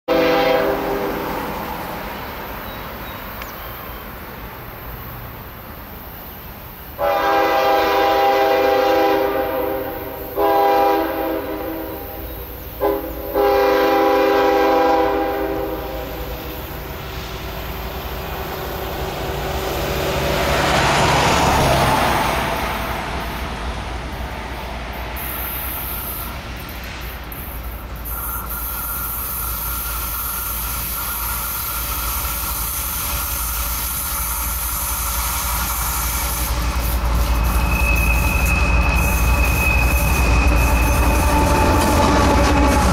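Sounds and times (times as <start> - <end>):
locomotive air horn: 0.0 - 1.6, 7.0 - 16.7, 28.1 - 32.6
broad whoosh of passing train: 0.1 - 42.9
thin steady squeal: 27.4 - 42.9.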